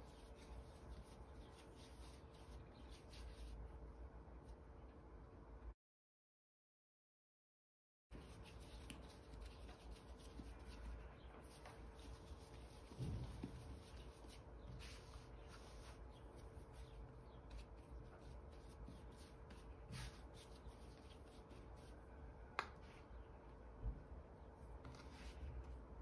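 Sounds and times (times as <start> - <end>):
hands rubbing and patting dough: 0.0 - 3.8, 8.1 - 23.3, 24.7 - 26.0
faint steady hum: 0.0 - 5.8, 8.1 - 26.0.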